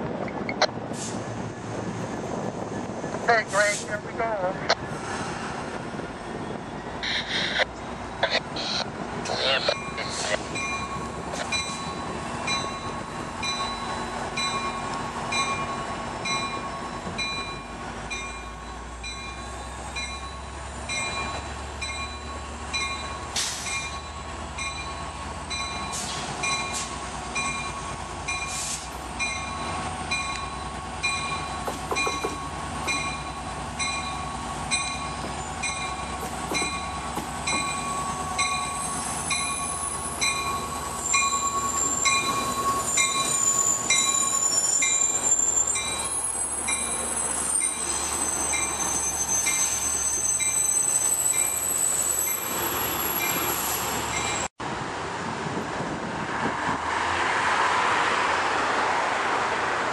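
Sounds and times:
diesel locomotive engine: 0:00.0 - 0:59.9
locomotive bell ringing: 0:09.7 - 0:28.6, 0:29.2 - 0:54.5
wheels squealing: 0:28.3 - 0:54.5.

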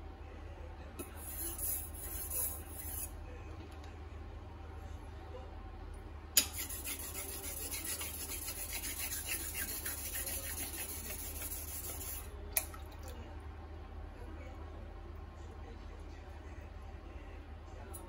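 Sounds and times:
knife scraping on whetstone: 0:06.4 - 0:12.3.

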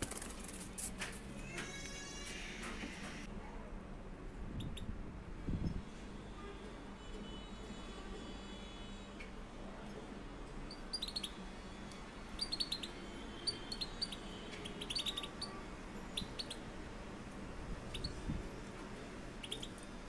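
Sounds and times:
goldfinches chirping: 0:10.7 - 0:11.4, 0:12.4 - 0:16.7, 0:19.4 - 0:19.8.

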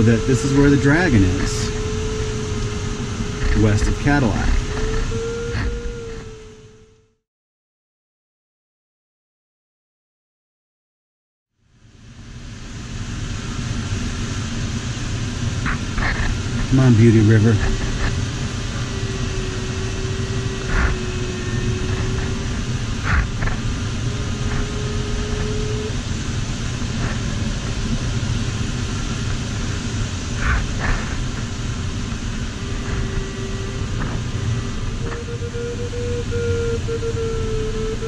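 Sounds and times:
electronic audio tone: 0:00.0 - 0:07.2, 0:16.7 - 0:26.0, 0:32.4 - 0:38.0
air rushing over canopy: 0:11.8 - 0:38.0.

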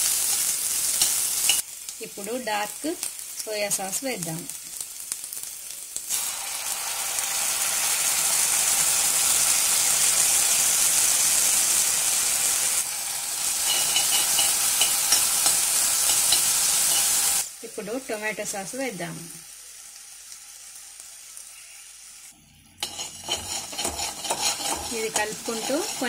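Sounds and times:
sauce sizzling in hot oil: 0:00.0 - 0:26.0
spatula scraping pan: 0:13.5 - 0:17.4, 0:22.8 - 0:26.0.

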